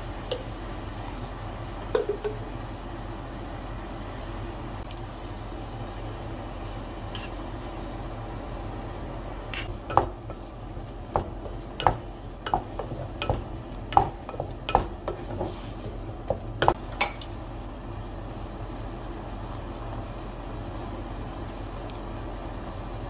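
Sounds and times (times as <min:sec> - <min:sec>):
quiet frying: 0:00.0 - 0:23.0
spatula scraping a pan: 0:15.0 - 0:16.0.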